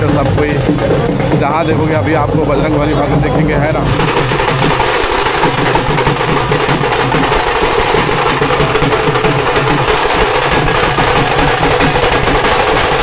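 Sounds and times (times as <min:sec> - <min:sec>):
drums beaten with sticks: 0:00.0 - 0:13.0.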